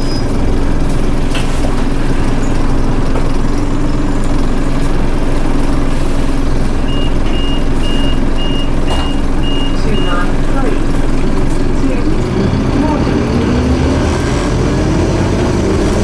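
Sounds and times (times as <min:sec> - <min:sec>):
bus engine rumbling: 0:00.0 - 0:16.0
high electronic warning beeps: 0:06.8 - 0:10.4.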